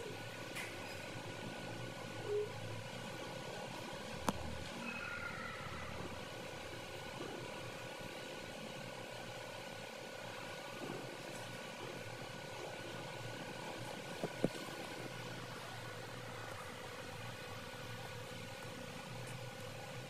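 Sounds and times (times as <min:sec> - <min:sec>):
faint hum: 0:00.0 - 0:20.0.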